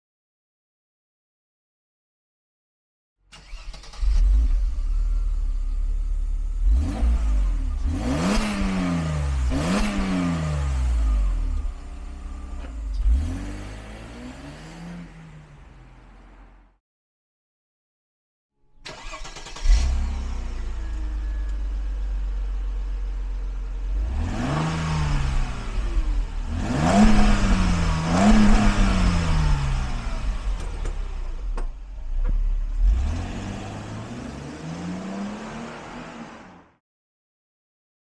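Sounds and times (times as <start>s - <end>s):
car engine revving and idling: 3.5s - 16.7s, 18.9s - 36.8s.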